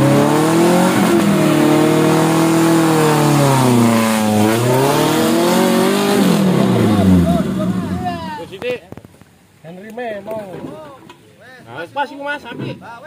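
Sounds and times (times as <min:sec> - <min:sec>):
engine revving under load: 0:00.0 - 0:07.9.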